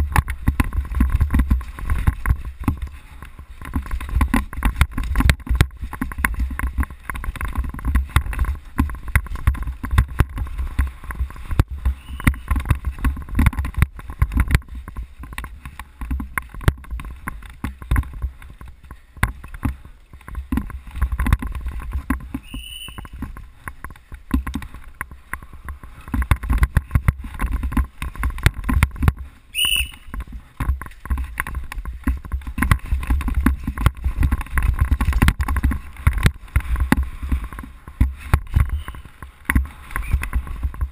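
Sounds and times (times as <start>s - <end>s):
bike rattling and knocking: 0.0s - 40.9s
short high squeaks: 12.0s - 12.5s, 22.4s - 23.1s, 29.6s - 30.1s, 38.7s - 39.1s.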